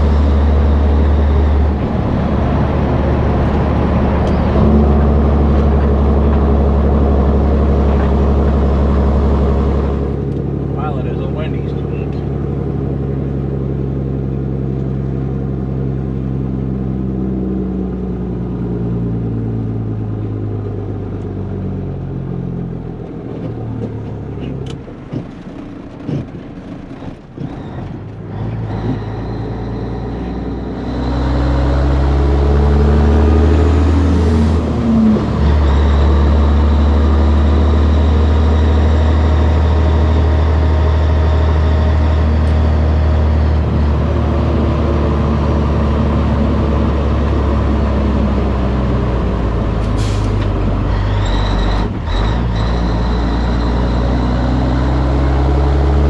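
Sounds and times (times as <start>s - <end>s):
diesel truck engine: 0.0s - 56.0s.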